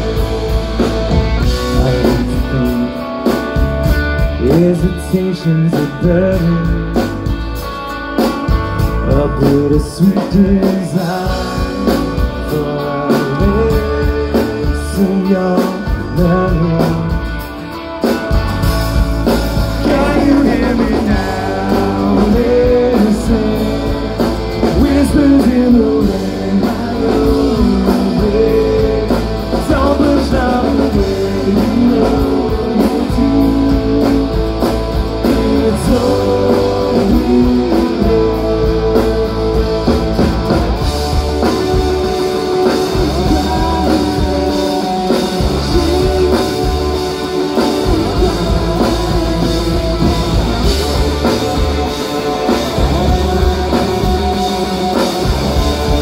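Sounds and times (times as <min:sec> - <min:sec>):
person singing: 0:00.0 - 0:03.6, 0:04.2 - 0:07.1, 0:08.8 - 0:17.4, 0:19.8 - 0:56.0
live rock band playing: 0:00.0 - 0:56.0.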